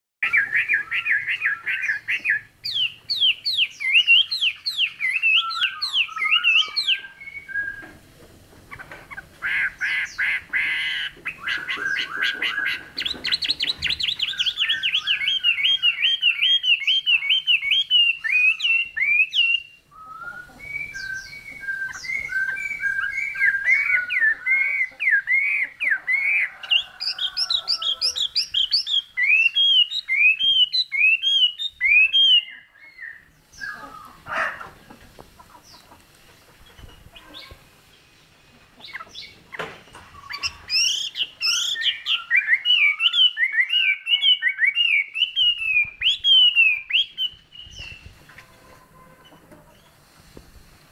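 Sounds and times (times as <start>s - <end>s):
bird singing whistled song: 0.2s - 8.0s, 11.3s - 33.8s, 40.2s - 48.1s.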